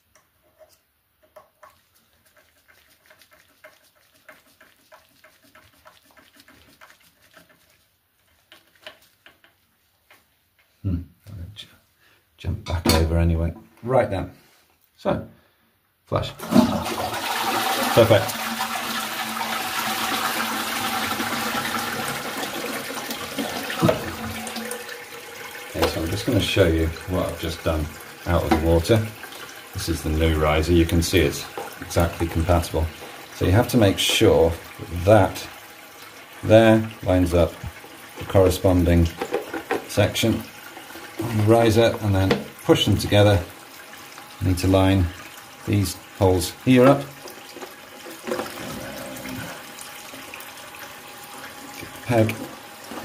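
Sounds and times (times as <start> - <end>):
toilet flushing: 16.4 - 53.0.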